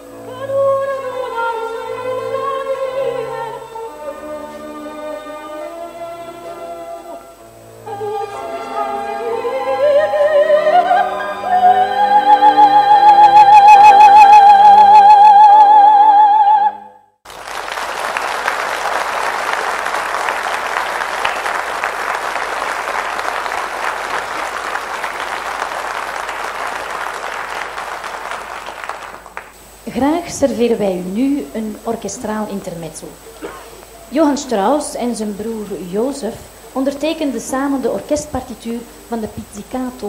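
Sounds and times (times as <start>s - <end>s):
soprano singing: 0.0s - 16.9s
audience applause: 17.3s - 29.6s.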